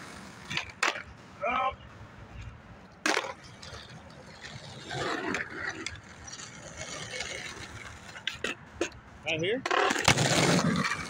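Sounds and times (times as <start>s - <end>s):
skateboard clacking on pavement: 0.0s - 1.1s, 2.9s - 9.0s, 9.6s - 11.0s
skateboard wheels rolling on asphalt: 0.0s - 11.0s.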